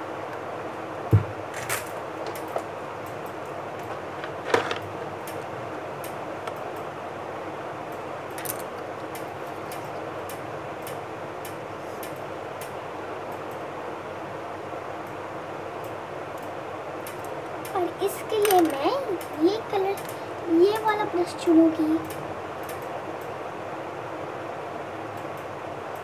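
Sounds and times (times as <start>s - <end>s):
fan noise: 0.0s - 26.0s
faint regular ticking: 7.8s - 13.6s, 15.8s - 23.4s.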